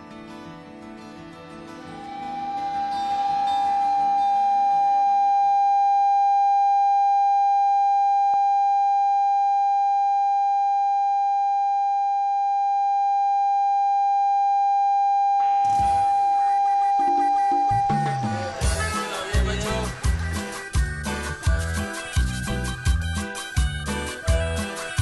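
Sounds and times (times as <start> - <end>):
music: 0.0 - 4.7, 15.6 - 25.0
steady electronic tone: 12.6 - 19.0.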